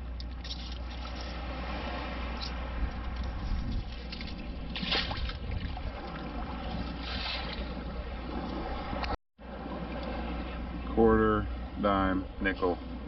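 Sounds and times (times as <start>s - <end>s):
steady wash of water: 0.0s - 13.0s
water splashing through scoop: 3.8s - 7.7s.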